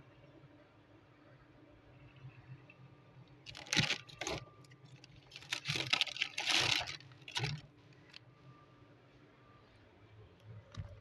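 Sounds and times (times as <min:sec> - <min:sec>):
faint low hum: 0:00.0 - 0:11.0
plastic bags crinkling: 0:03.5 - 0:08.2.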